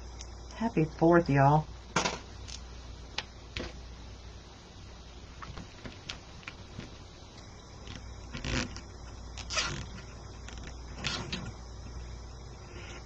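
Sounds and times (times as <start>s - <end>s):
low steady hum: 0.0s - 13.0s
mesh rustling: 7.8s - 8.8s, 9.4s - 11.5s.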